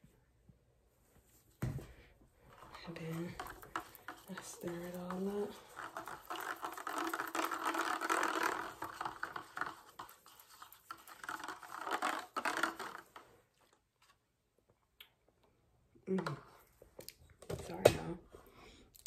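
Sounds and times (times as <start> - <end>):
straw stirring in plastic cup: 2.4 - 14.2.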